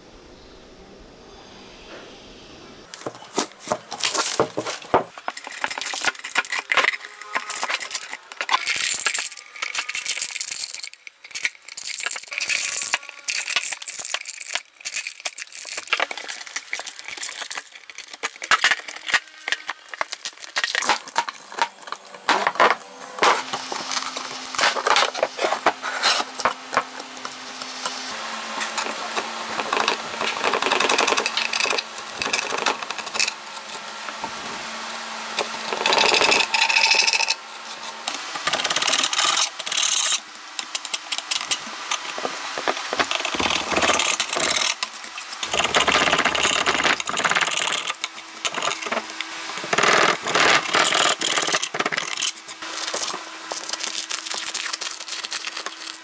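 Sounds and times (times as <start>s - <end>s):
faint steady hum: 0.0s - 56.0s
packing tape peeling off: 2.9s - 33.7s, 37.7s - 56.0s.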